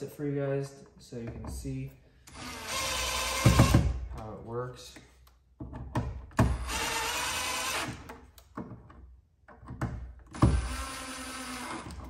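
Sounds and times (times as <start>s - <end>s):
impact driver driving screws: 2.3s - 3.9s, 6.3s - 8.3s, 10.3s - 12.0s.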